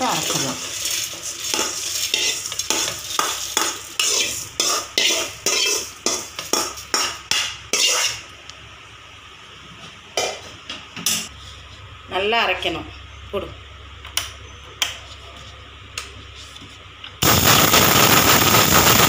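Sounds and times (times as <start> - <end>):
steel spoon scraping metal pan: 0.9 - 7.1, 7.7 - 8.2.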